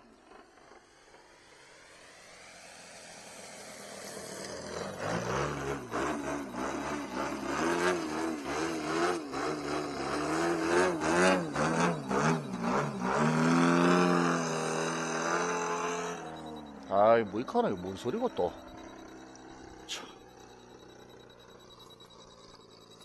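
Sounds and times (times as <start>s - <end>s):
model plane engine: 0.0s - 23.0s.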